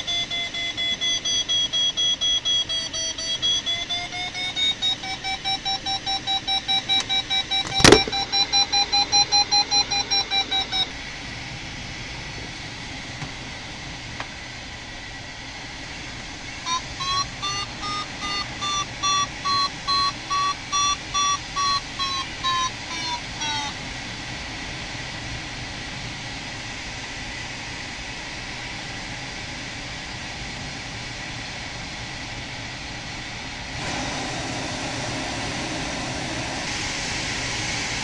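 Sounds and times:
variometer beeping: 0:00.0 - 0:11.0, 0:16.6 - 0:23.8.

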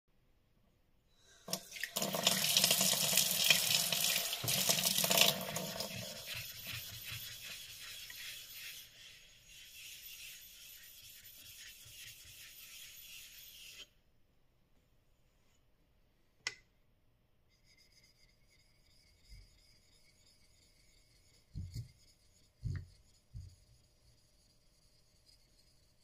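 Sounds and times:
block scraping on wet whetstone: 0:04.4 - 0:13.9, 0:18.5 - 0:26.0
plane blade honing strokes: 0:04.4 - 0:14.0, 0:17.6 - 0:26.0.

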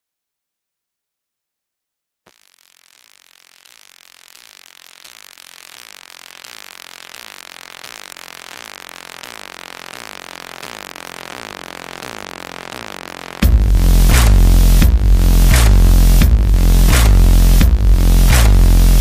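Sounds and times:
dense synth sound: 0:10.5 - 0:19.0.

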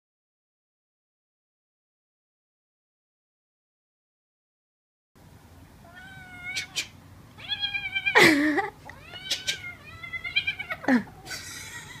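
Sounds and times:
kitten meowing: 0:05.9 - 0:08.2, 0:08.9 - 0:10.9.

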